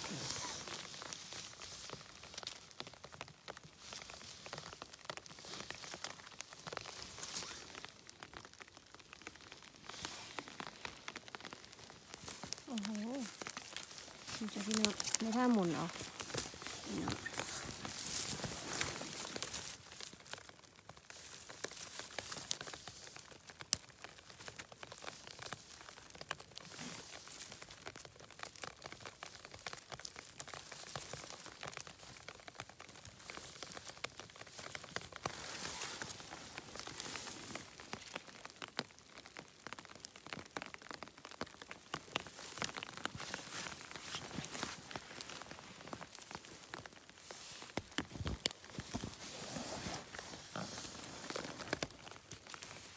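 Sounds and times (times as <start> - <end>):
hands rustling through wet moss: 0.0 - 52.9.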